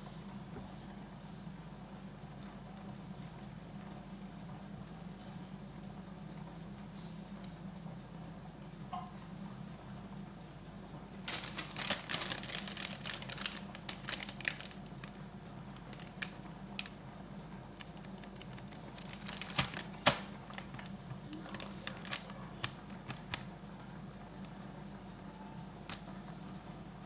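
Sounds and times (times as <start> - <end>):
plastic pack crinkling: 11.2 - 17.0, 17.8 - 23.6.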